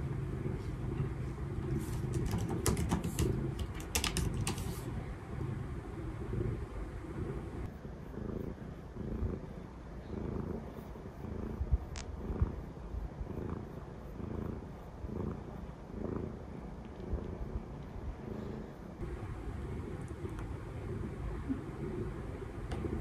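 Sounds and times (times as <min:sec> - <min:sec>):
cat purring: 0:00.0 - 0:23.0.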